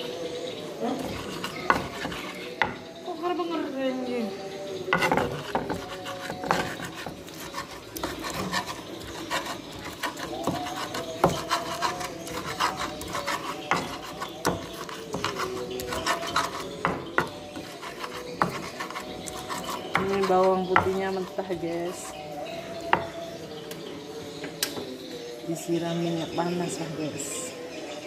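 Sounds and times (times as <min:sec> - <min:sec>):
stone pestle grinding in mortar: 0:01.0 - 0:02.9, 0:04.9 - 0:23.3.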